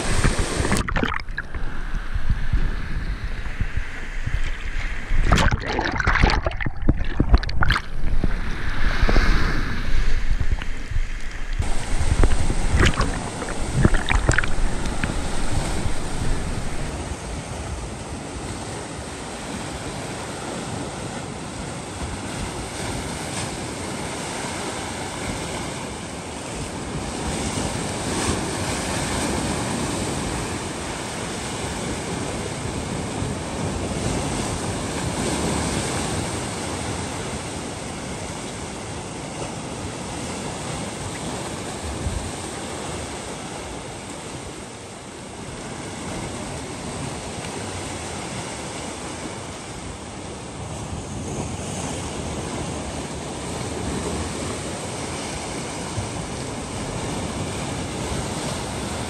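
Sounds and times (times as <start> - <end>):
surf breaking on rocky shore: 0.0 - 17.0.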